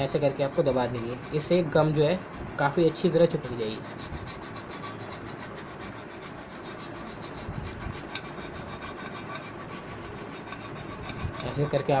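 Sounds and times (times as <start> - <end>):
screwdriver scratching on fabric: 0.0 - 12.0.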